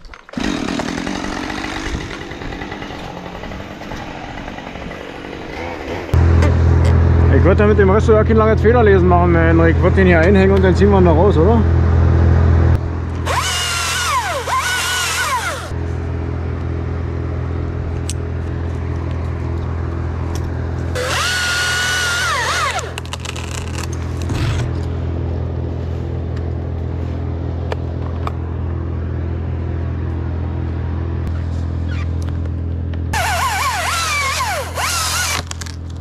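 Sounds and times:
chainsaw idling and revving: 0.3s - 6.8s, 13.2s - 15.8s, 20.9s - 24.3s, 33.2s - 35.8s.

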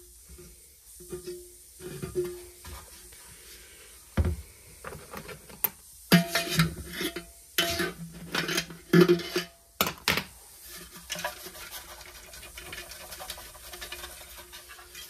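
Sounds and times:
paper scratching against metal: 10.8s - 15.0s.

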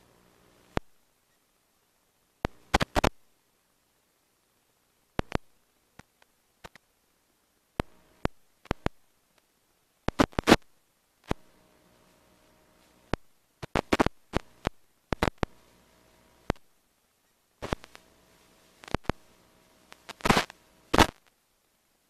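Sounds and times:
faint steady hum: 0.0s - 22.0s
sharp clicks and taps: 5.2s - 6.8s.

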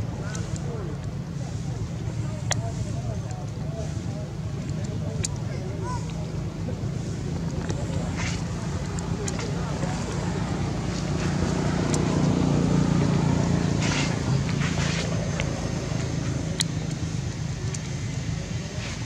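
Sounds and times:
vehicle engine running: 0.0s - 19.0s
faint clicks: 0.2s - 1.2s, 2.0s - 12.3s, 14.5s - 19.0s.

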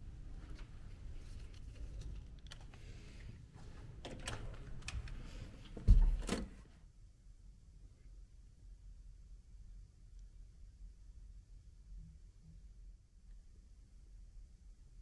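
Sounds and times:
door lock clicks and rattles: 4.0s - 5.2s
door thumping: 5.8s - 6.5s.

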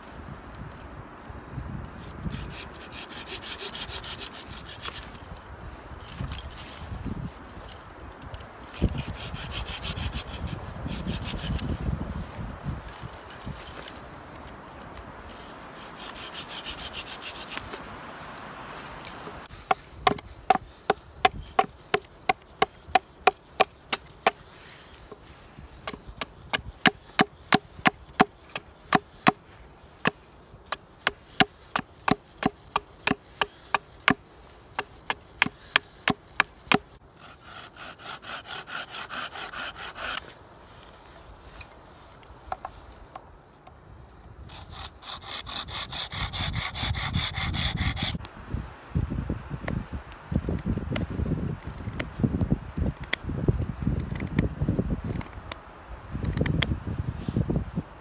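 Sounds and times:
hand saw cutting stick: 2.2s - 5.2s, 8.7s - 11.8s, 15.3s - 17.8s, 19.0s - 40.4s, 44.4s - 48.3s, 54.0s - 55.6s
hatchet chopping wood: 19.6s - 24.4s, 25.8s - 29.4s, 30.0s - 40.2s.

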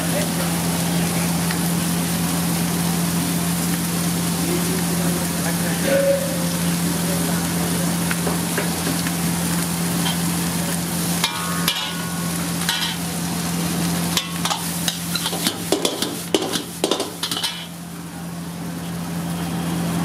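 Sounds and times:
wok sizzling: 0.0s - 20.0s
low hum: 4.3s - 14.4s
metal ladle scraping wok: 5.8s - 7.1s, 11.1s - 13.2s, 14.1s - 17.8s.

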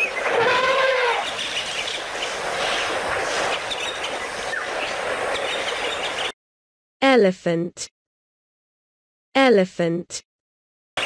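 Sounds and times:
steady rushing noise: 1.3s - 6.3s.

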